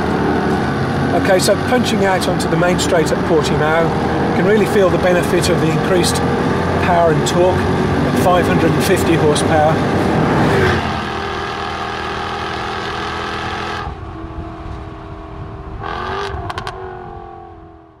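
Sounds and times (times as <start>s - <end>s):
car engine running hard: 0.0s - 18.0s
exhaust cracks: 15.6s - 17.2s.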